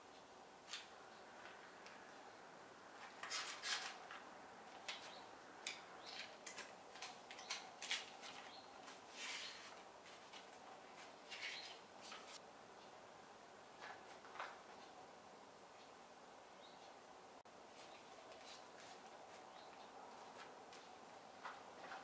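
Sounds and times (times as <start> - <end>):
notebook pages rustling: 3.0 - 5.1, 6.1 - 12.4.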